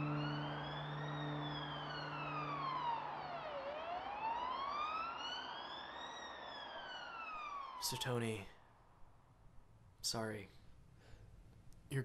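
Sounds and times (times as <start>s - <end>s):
emergency vehicle siren wailing: 0.0s - 8.5s.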